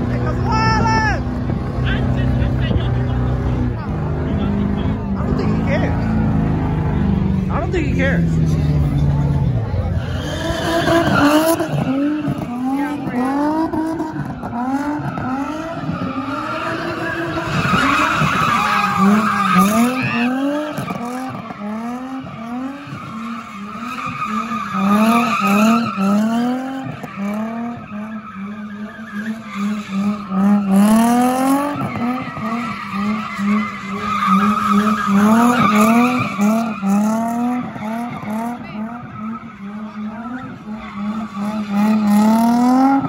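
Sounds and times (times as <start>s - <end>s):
car engine revving: 0.0s - 43.0s.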